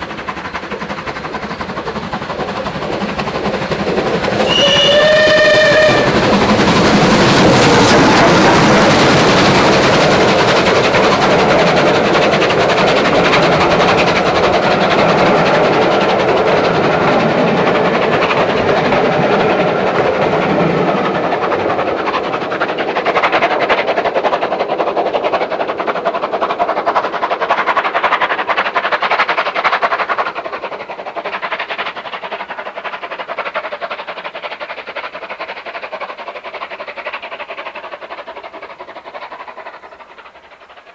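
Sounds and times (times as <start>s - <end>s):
steam train passing: 0.0s - 40.9s.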